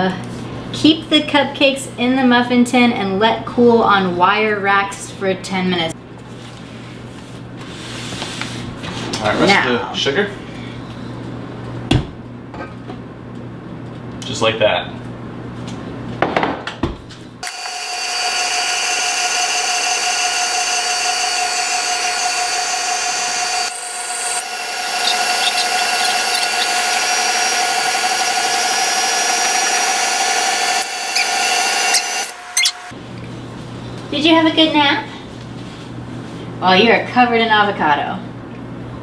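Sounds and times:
stand mixer motor whining: 17.4s - 33.0s.

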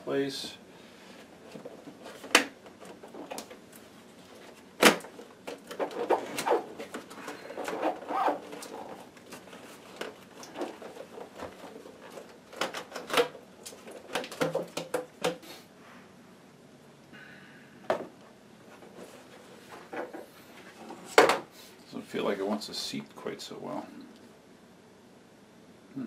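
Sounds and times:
plastic clicks and knocks: 10.0s - 15.4s.

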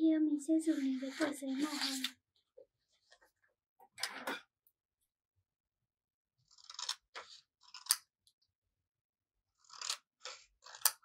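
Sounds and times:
scissors cutting paper: 1.0s - 2.2s, 6.4s - 8.4s, 9.5s - 11.0s.

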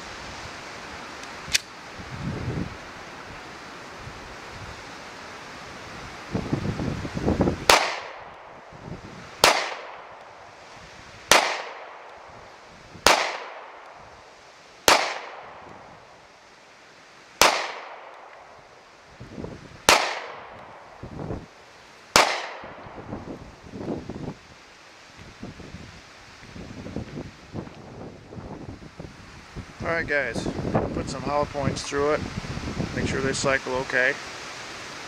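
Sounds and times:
wind rumbling on microphone: 0.0s - 14.4s, 15.2s - 16.3s, 17.7s - 35.0s
pistol shots with echo: 7.7s - 8.3s, 9.4s - 10.2s, 11.3s - 12.1s, 13.0s - 13.8s, 14.9s - 15.6s, 17.4s - 18.3s, 19.9s - 20.5s, 22.2s - 22.8s.

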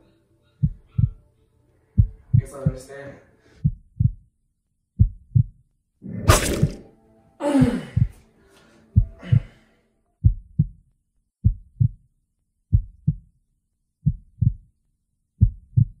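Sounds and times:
heartbeat thumps: 0.6s - 1.2s, 2.0s - 2.8s, 3.6s - 4.3s, 5.0s - 5.6s, 7.7s - 8.2s, 9.0s - 9.6s, 10.2s - 10.8s, 11.4s - 12.0s, 12.7s - 13.3s, 14.0s - 14.7s, 15.4s - 16.0s.

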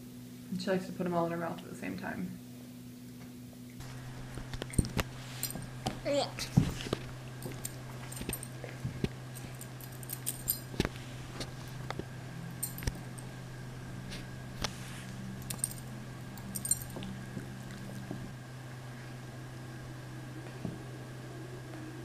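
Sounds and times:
steady low hum: 0.0s - 22.0s
dog collar jingling: 4.6s - 5.8s, 7.3s - 10.8s, 12.6s - 13.4s, 15.4s - 18.3s.

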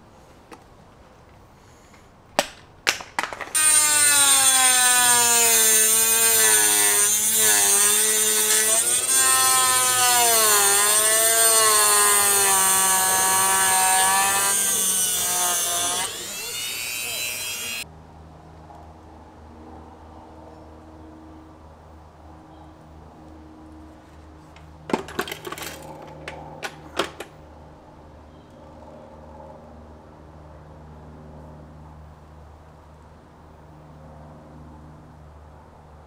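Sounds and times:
power tool cutting plastic: 3.4s - 17.8s.

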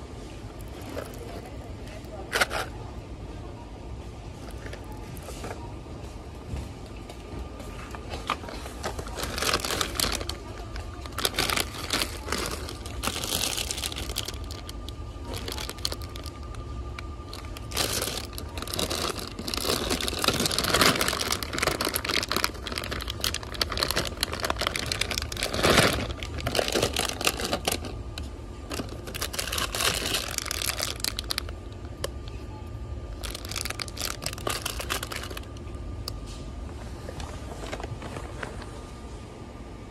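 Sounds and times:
plastic candy bags crinkling: 0.5s - 2.9s, 7.9s - 32.3s, 33.1s - 36.2s, 37.1s - 38.7s.

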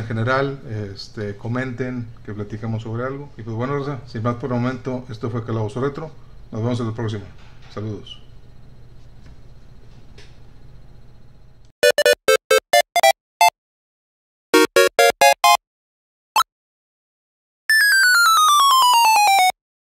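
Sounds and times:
retro video game jingle: 11.8s - 13.5s, 14.6s - 15.6s, 17.7s - 19.6s.

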